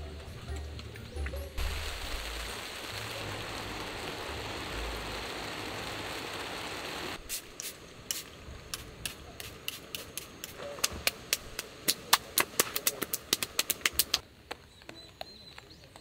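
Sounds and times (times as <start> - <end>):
heavy rain pouring: 1.6 - 7.3.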